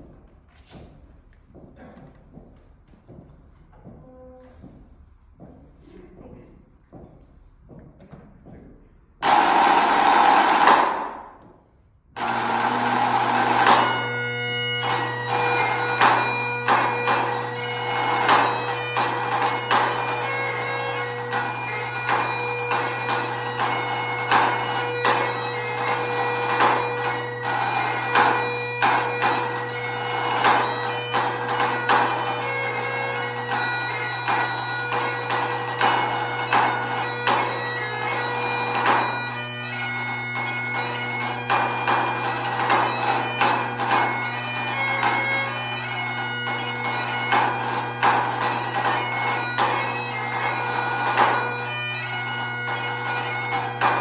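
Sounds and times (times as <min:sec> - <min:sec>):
bagpipes playing a tune: 0:09.2 - 0:11.2, 0:12.2 - 0:54.0
snare drum playing: 0:09.2 - 0:11.2.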